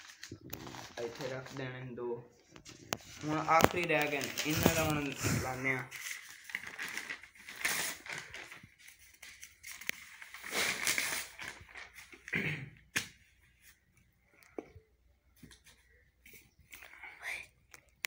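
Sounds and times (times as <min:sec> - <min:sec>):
paper rustling and crinkling: 0:00.0 - 0:12.3.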